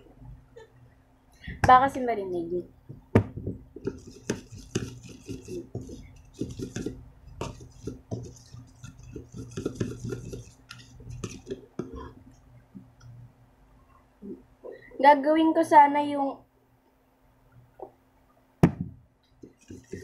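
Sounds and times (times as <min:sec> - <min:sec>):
electric fan hum: 0:00.0 - 0:20.0
spoon stirring and scraping slime: 0:03.7 - 0:13.2, 0:19.4 - 0:20.0.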